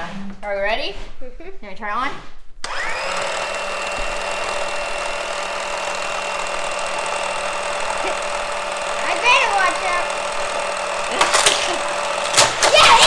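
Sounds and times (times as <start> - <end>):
toy track booster electric whir: 2.6 - 13.0.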